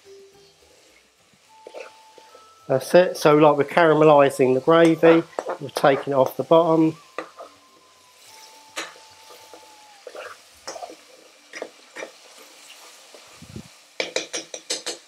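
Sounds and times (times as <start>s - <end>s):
sauce sizzling in a frying pan: 0.0s - 15.0s
metal spoon scraping a pan: 1.6s - 2.4s, 4.8s - 6.3s, 10.0s - 13.2s.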